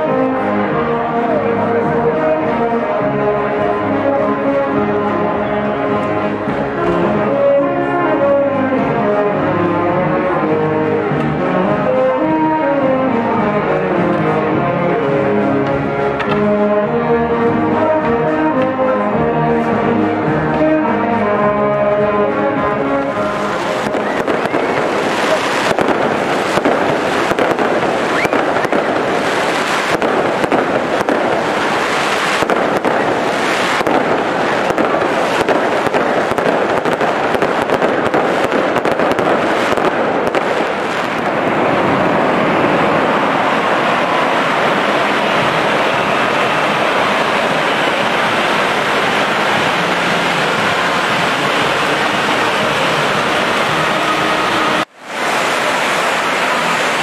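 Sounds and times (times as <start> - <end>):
brass band playing: 0.0 - 57.0
fireworks crackling and bursting: 0.0 - 57.0
firework fountains hissing: 19.6 - 57.0.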